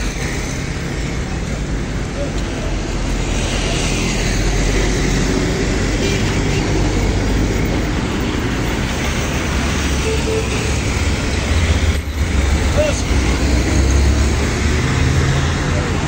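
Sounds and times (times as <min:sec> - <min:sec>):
road traffic passing close: 0:00.0 - 0:16.0.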